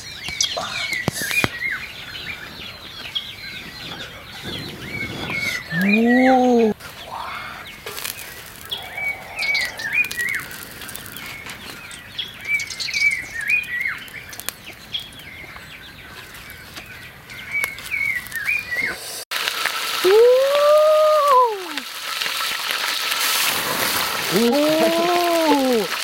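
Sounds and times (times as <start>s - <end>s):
bird chirping: 0.0s - 19.0s.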